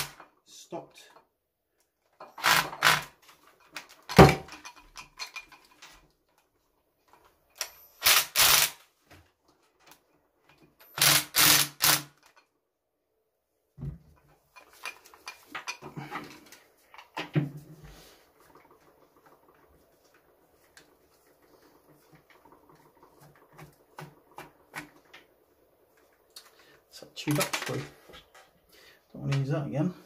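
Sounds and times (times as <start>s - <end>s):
cordless drill spinning in bursts: 2.4s - 3.1s, 8.0s - 8.8s, 11.0s - 12.1s.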